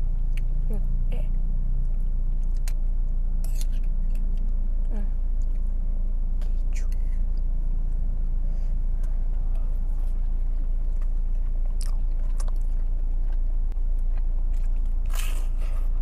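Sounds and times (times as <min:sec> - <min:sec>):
low car cabin hum: 0:00.0 - 0:16.0
person chewing food: 0:01.8 - 0:04.6, 0:09.0 - 0:16.0
crisp bite: 0:14.0 - 0:15.9.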